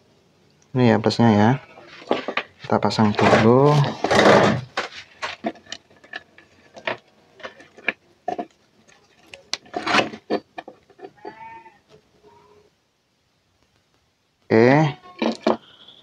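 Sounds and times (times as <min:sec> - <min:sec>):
cat meowing: 0:11.2 - 0:12.7.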